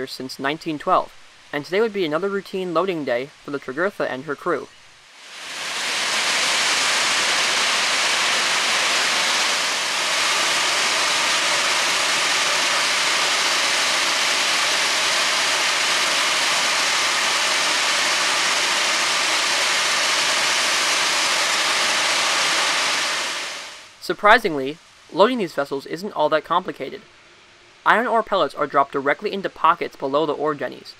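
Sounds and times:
ore pellets pouring down chutes: 5.4 - 23.7.

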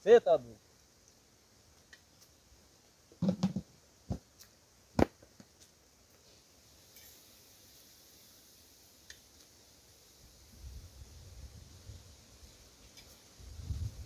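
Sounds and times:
knocks and rustling: 3.2 - 4.3
faint ticks: 9.0 - 9.5.

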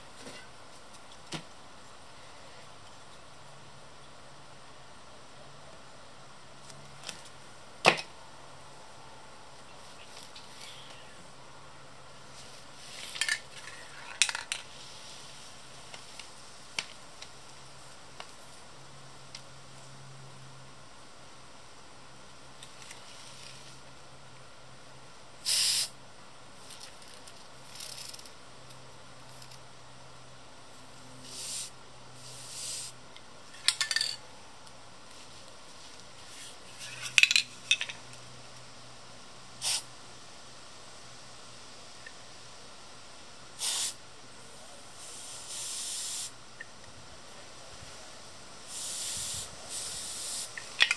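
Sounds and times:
hissy scrape: 12.3 - 16.2, 22.8 - 23.8, 30.8 - 33.0, 43.6 - 46.3, 48.6 - 50.9
spray paint can hissing: 25.4 - 25.9, 31.2 - 33.0, 39.6 - 39.9, 43.6 - 44.0, 45.0 - 46.3, 48.6 - 50.9
metal spray cans clinking: 33.6 - 34.2, 36.8 - 38.0, 49.8 - 50.9.

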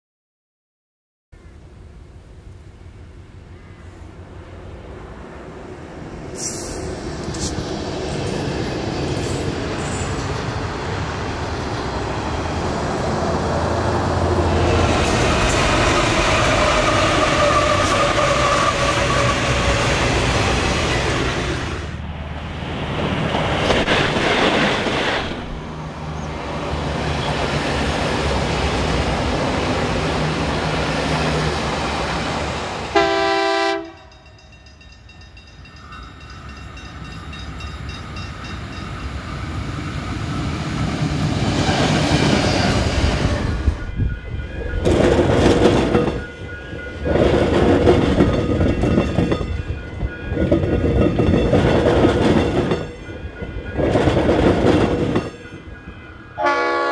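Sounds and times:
freight train approaching: 1.4 - 56.9
train wheels rumbling on rails: 3.6 - 56.9
train clattering over crossover: 5.8 - 56.9
train horn blast: 32.9 - 34.1, 56.4 - 56.9.

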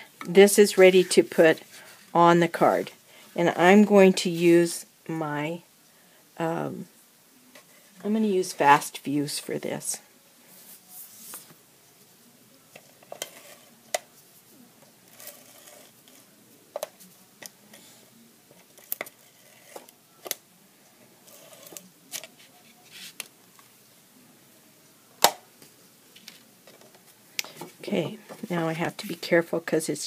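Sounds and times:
paper rustling: 21.4 - 23.3.

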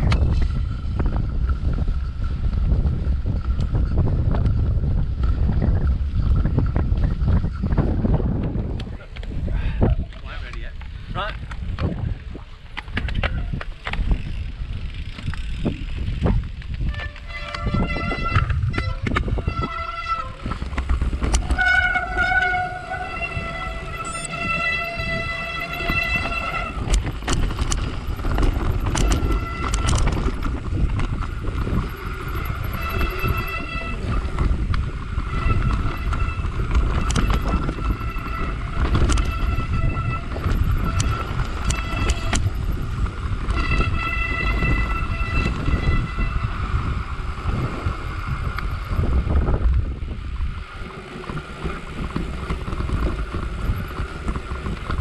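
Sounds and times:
bike rattling over bumps: 0.0 - 55.0
bike tyres rumbling: 0.0 - 55.0
wind buffeting microphone: 0.0 - 55.0
high squeal from bike: 16.9 - 20.6, 21.4 - 26.9, 32.4 - 34.4, 35.3 - 42.4, 43.6 - 46.6.

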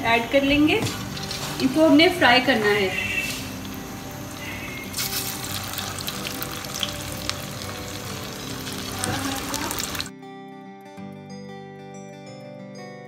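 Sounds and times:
chicken deep-frying in oil: 0.6 - 10.1
spoon turning food in pan: 0.8 - 1.8, 3.2 - 10.1.

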